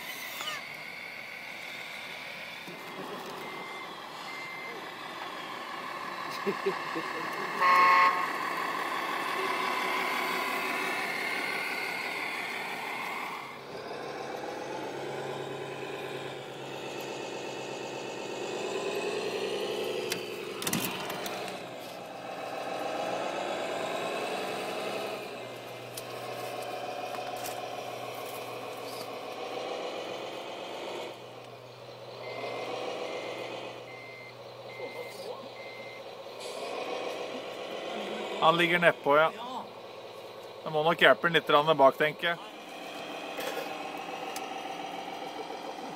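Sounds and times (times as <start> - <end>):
simulated diesel engine revving: 0.0 - 45.9
reversing beeper: 2.6 - 23.7, 32.1 - 39.7.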